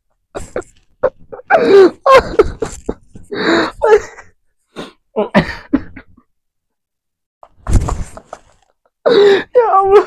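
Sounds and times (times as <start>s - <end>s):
young man laughing hard: 0.3s - 3.2s.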